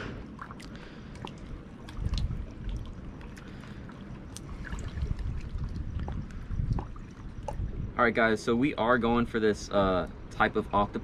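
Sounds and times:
seawater sloshing and lapping: 0.0s - 7.8s
small drips and splashes: 0.2s - 7.8s.

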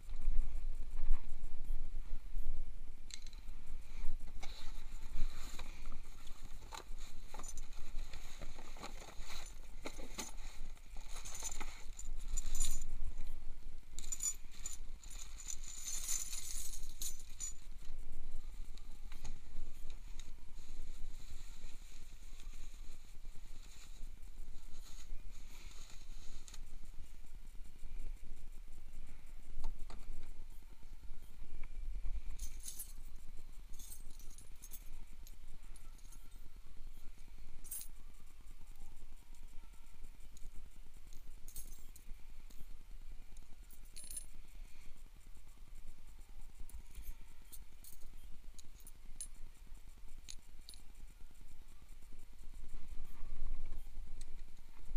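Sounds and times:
metal spanners and bolts clinking: 4.4s - 13.3s, 14.0s - 17.9s, 32.3s - 35.0s, 41.1s - 42.7s.

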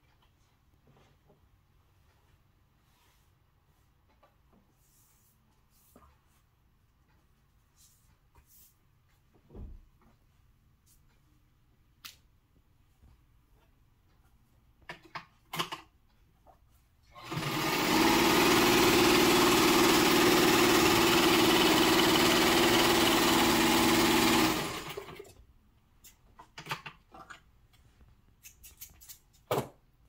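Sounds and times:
sewing machine stitching: 17.1s - 25.4s.

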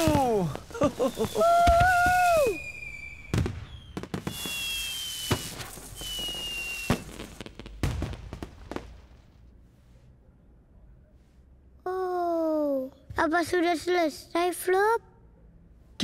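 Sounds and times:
firework whistles: 0.0s - 7.5s
fireworks bangs and crackling: 0.0s - 9.5s.

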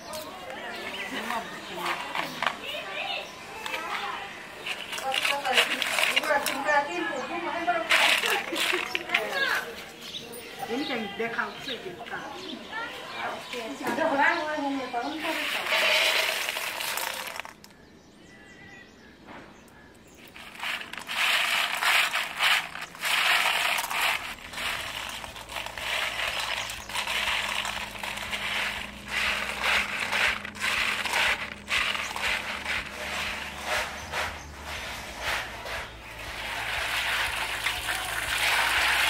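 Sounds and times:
snail shells clattering on metal: 0.0s - 2.8s, 3.6s - 9.7s, 15.1s - 17.8s, 20.2s - 39.0s
shells rattling and clicking: 1.2s - 2.6s, 4.6s - 6.7s, 7.9s - 9.6s, 15.4s - 17.8s, 20.2s - 34.4s, 35.6s - 39.0s.

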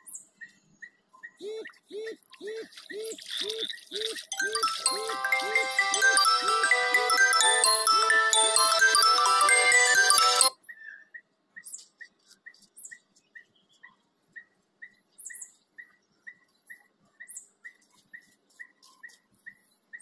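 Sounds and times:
background music: 4.4s - 10.6s.

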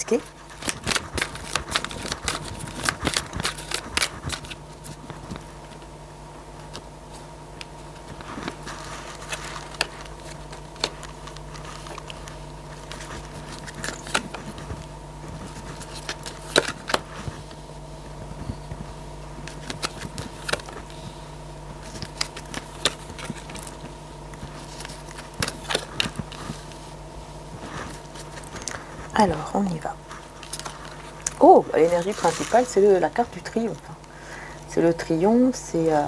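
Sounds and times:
electrical hum: 0.0s - 36.0s
cards shuffling: 0.2s - 5.8s, 7.9s - 17.6s, 19.4s - 21.1s, 21.8s - 26.8s, 27.6s - 33.8s.

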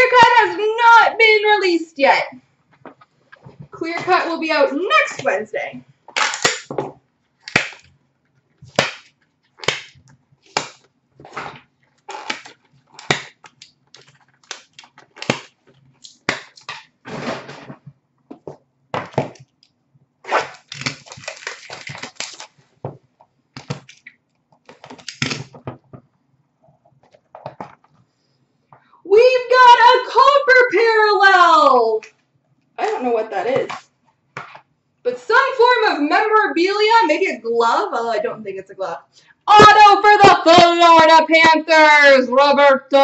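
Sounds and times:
cards and packaging swishes and snaps: 8.7s - 17.0s, 20.2s - 22.6s, 23.6s - 25.6s
packaging rustle: 10.4s - 17.0s, 20.4s - 23.0s.

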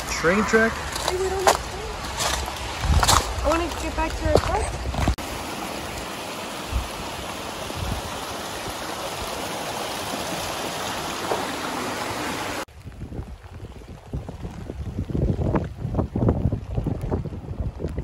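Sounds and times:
stream rushing through tunnel: 0.0s - 13.0s
wind buffeting microphone: 0.3s - 5.2s, 12.7s - 18.0s.

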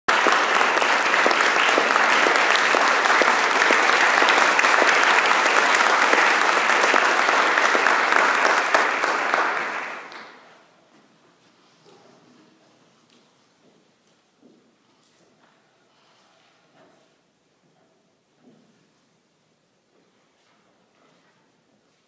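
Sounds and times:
audience applauding: 0.1s - 10.5s.

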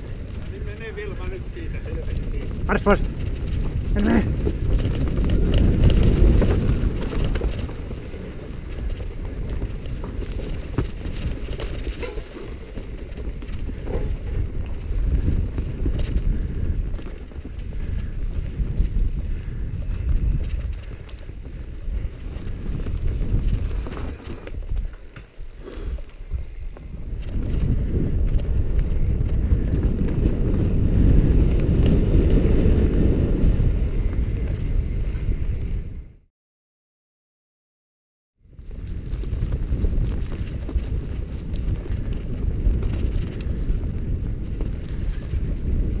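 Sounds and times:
bike tyre rumble: 0.0s - 36.2s, 38.4s - 46.0s
wind noise on microphone: 0.0s - 36.3s, 38.4s - 46.0s
bike knocks and rattles: 2.2s - 34.4s.

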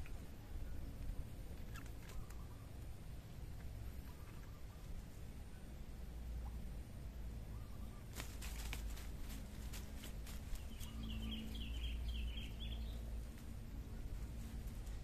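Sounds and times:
low steady rumble: 0.0s - 15.0s
bird chirping rapidly: 10.5s - 13.1s.

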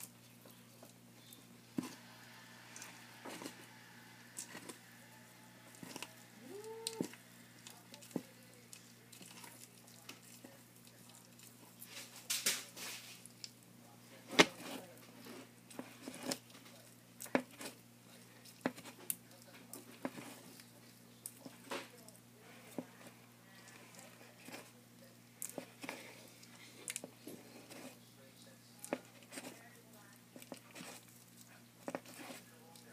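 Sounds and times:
faint steady hum: 0.0s - 32.9s
tortoise biting and crunching food: 0.0s - 32.9s.

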